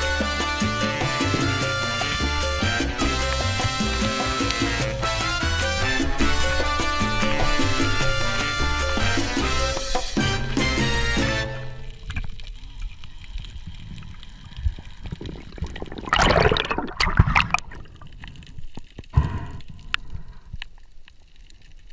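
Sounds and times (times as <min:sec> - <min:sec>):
water splashing: 0:00.0 - 0:20.2
low underwater rumble: 0:00.0 - 0:21.9
clicks underwater: 0:11.9 - 0:20.8.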